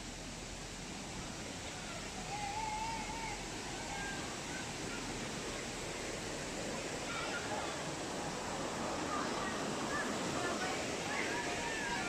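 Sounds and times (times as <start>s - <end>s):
waterfall and stream rushing: 0.0s - 12.0s
faint wavering call: 2.2s - 4.2s.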